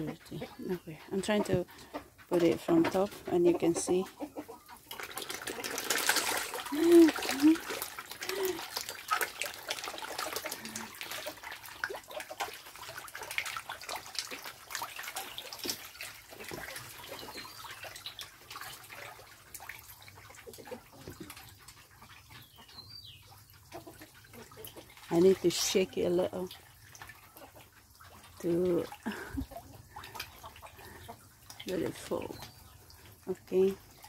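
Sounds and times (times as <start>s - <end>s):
fish splashing at water surface: 4.8s - 21.9s.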